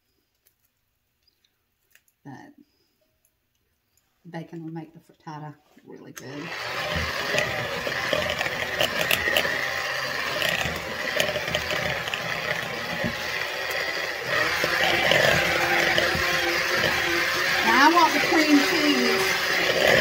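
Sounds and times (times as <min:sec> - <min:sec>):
electric hand mixer running: 0:06.3 - 0:20.0
beaters rattling in bowl: 0:06.6 - 0:20.0.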